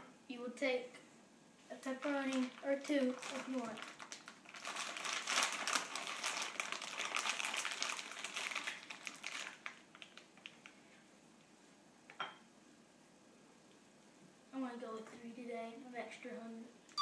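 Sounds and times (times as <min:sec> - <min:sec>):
plastic bag crinkling: 0:01.8 - 0:10.9.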